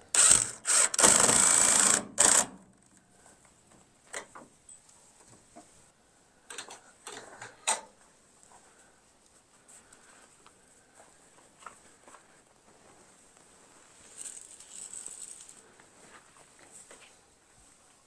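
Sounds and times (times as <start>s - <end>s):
cordless drill motor whirring: 0.1s - 2.5s.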